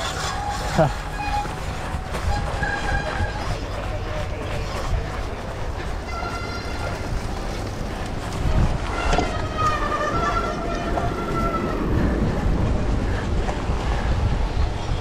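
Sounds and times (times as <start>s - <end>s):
high wavering squeal: 0.0s - 3.7s
bike rolling over dirt: 0.0s - 15.0s
wind on microphone: 0.0s - 15.0s.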